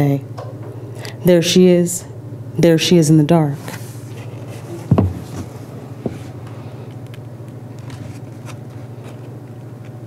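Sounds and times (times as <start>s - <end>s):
low room hum: 0.0s - 10.0s
soft thump: 4.9s - 6.2s
book pages rustling: 7.8s - 9.4s.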